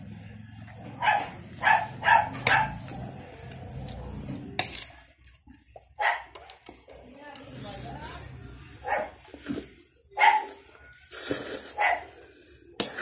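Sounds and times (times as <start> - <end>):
dog barking: 1.0 - 3.1, 6.0 - 6.5, 8.8 - 9.2, 10.2 - 10.5, 11.7 - 12.1.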